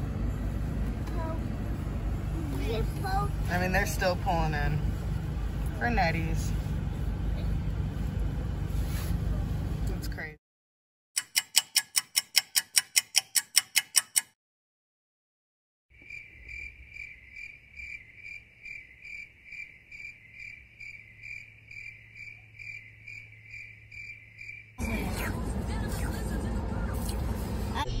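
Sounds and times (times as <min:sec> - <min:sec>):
fast clock ticking: 0:11.2 - 0:14.4
crickets chirping: 0:16.0 - 0:24.8.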